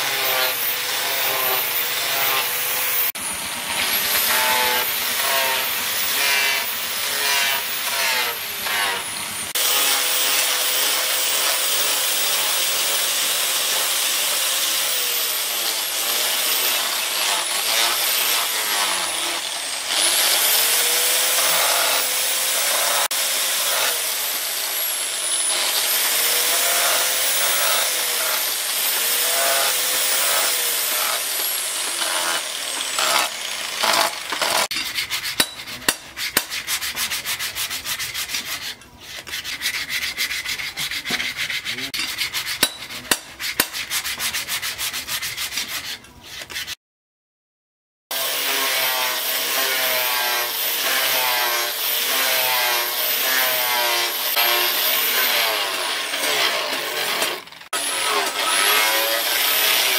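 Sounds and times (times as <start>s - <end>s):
angle grinder whining: 0.0s - 34.8s, 48.1s - 59.9s
sanding disc rasping on wood: 0.0s - 46.8s, 48.2s - 59.9s.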